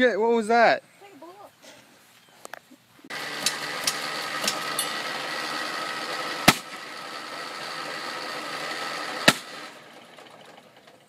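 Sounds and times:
engine backfire bang: 3.1 - 11.0
lawn mower engine running: 3.1 - 11.0.

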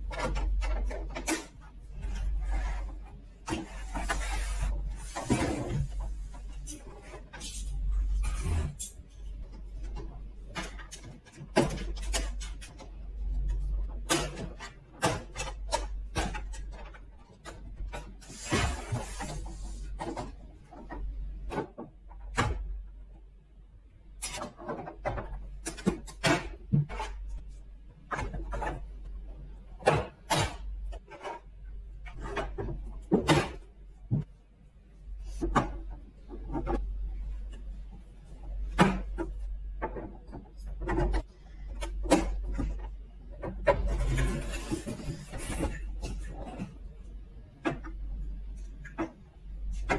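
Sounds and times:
plastic scraping rub: 43.4 - 46.8.

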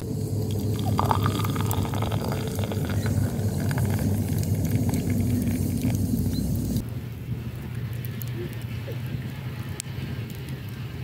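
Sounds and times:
tea pouring into glass: 0.3 - 6.4.

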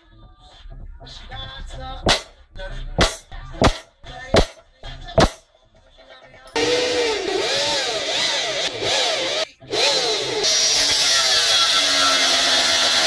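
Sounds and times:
angle grinder cutting steel: 6.6 - 13.0
electric drill boring through steel: 6.6 - 13.0.

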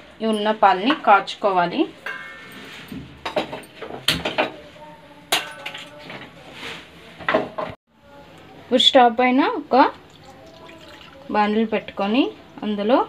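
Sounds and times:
metal utensils clinking: 2.0 - 4.5.

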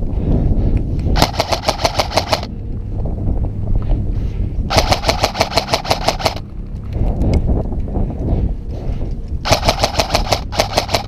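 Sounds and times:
airsoft rifle rapid bursts: 1.2 - 2.5, 4.7 - 6.4, 9.4 - 11.0.

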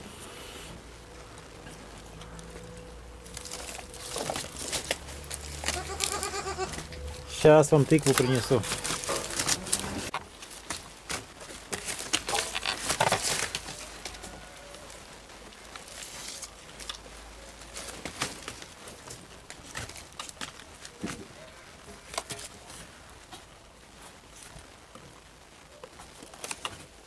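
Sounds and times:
straw rustling: 0.0 - 27.0
goats crunching food: 1.1 - 27.0.

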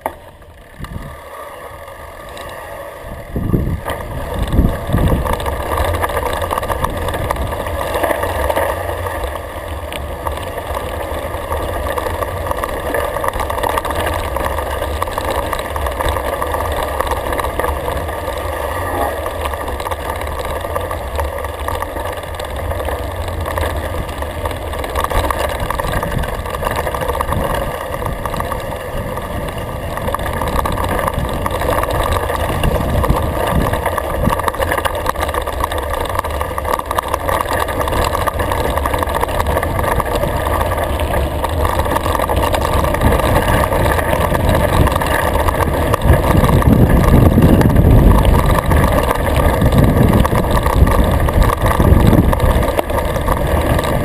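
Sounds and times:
bike tyres rumbling on gravel: 0.0 - 54.0
wind: 0.0 - 54.0.

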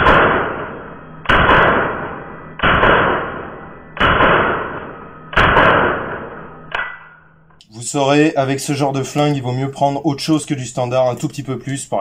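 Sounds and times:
rifle shots indoors: 0.0 - 7.4.

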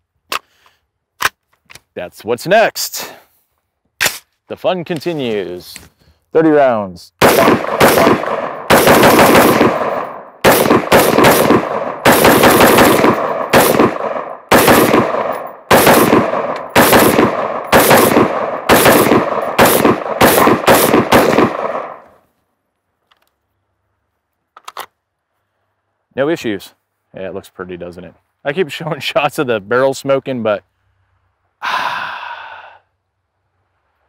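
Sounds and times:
rapid gunshots with echo: 7.2 - 22.0.

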